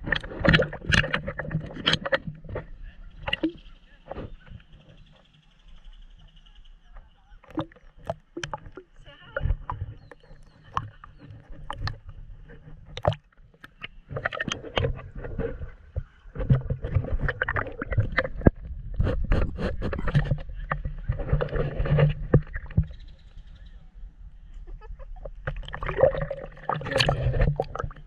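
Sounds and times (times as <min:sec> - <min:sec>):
water sloshing and splashing: 0:00.0 - 0:05.0, 0:07.4 - 0:23.5, 0:25.2 - 0:28.0
muffled underwater gurgling: 0:00.0 - 0:05.3, 0:06.4 - 0:28.0.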